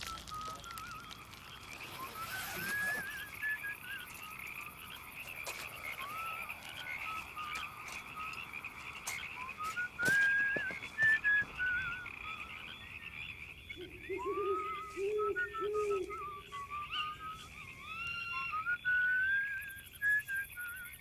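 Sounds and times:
frogs croaking and chirring: 0:00.0 - 0:21.0
wavering whistle-like tune: 0:01.8 - 0:04.4, 0:09.4 - 0:12.6, 0:13.8 - 0:21.0.

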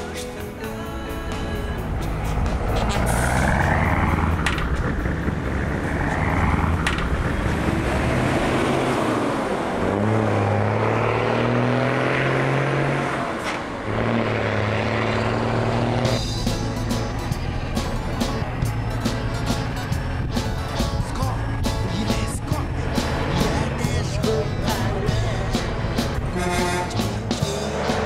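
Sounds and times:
bus engine accelerating: 0:00.0 - 0:28.0.

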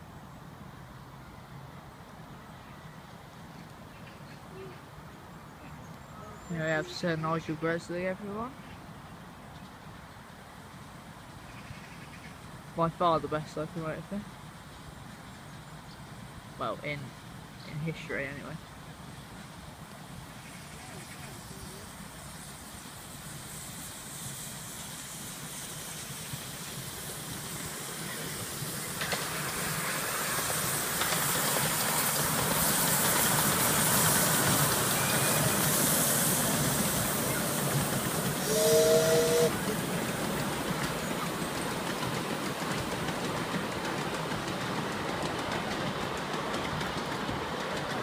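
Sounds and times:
steam locomotive exhaust hissing: 0:09.9 - 0:48.0
carriages rolling on track: 0:25.2 - 0:48.0
two-note steam whistle: 0:38.4 - 0:39.7.

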